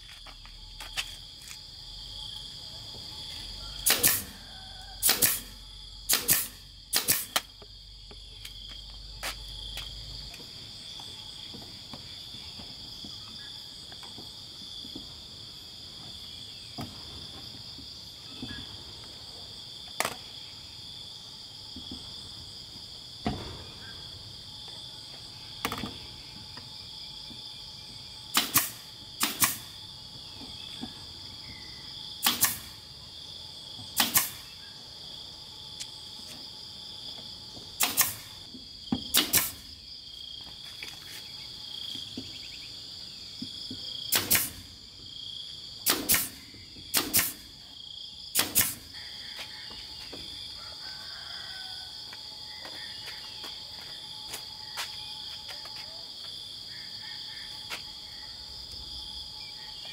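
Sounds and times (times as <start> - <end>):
insects chirring: 0.0 - 59.9
nail gun firing into wood: 3.8 - 4.4, 5.0 - 7.5, 28.3 - 29.8, 32.2 - 32.8, 34.0 - 34.5, 37.8 - 38.3, 39.0 - 39.7, 44.1 - 44.7, 45.8 - 47.5, 48.3 - 48.8.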